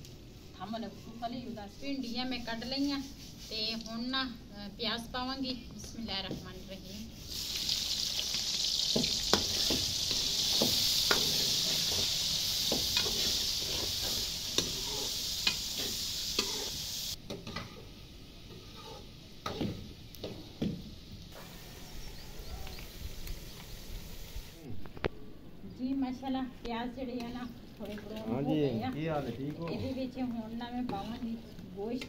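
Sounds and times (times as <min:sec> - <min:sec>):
onions sizzling in hot fat: 0:00.6 - 0:24.7.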